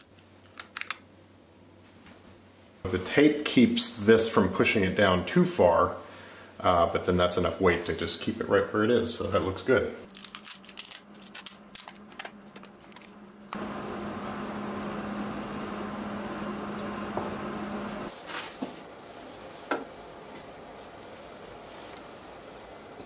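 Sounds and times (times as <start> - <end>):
mechanical hum: 0.0 - 23.0
plastic crinkling and tearing: 10.1 - 13.2.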